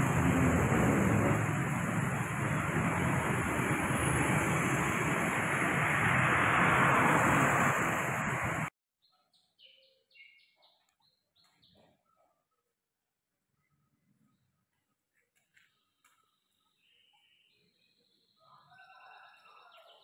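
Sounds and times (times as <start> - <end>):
rain hissing on wet street: 0.0 - 8.7
tyres on wet asphalt: 0.0 - 8.7
faint bird chirps: 9.0 - 12.7, 13.5 - 20.0.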